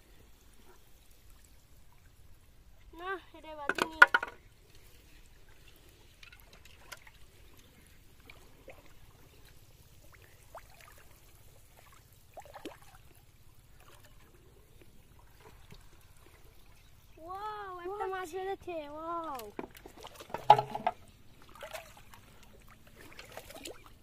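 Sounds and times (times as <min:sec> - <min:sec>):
water drips and plops: 0:05.5 - 0:17.1, 0:19.2 - 0:24.0.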